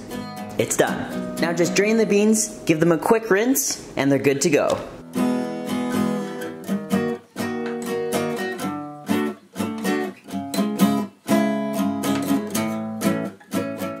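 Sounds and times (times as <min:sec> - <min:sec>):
guitar strumming chords: 0:00.0 - 0:14.0.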